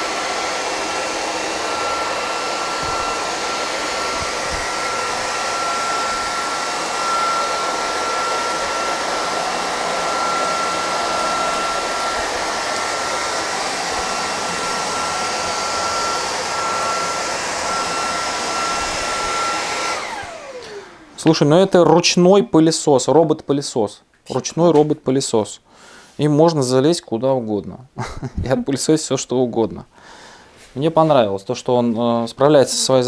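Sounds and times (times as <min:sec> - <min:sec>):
stick vacuum whining: 0:00.0 - 0:22.0.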